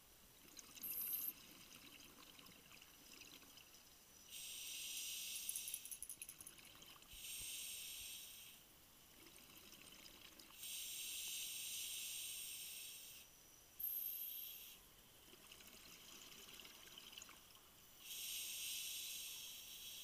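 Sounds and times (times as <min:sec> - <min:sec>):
crackling bubbles: 0:00.4 - 0:03.9, 0:09.1 - 0:10.6, 0:15.2 - 0:17.7
underwater regulator breath hiss: 0:04.3 - 0:05.7, 0:07.1 - 0:08.7, 0:10.6 - 0:13.3, 0:18.0 - 0:20.0.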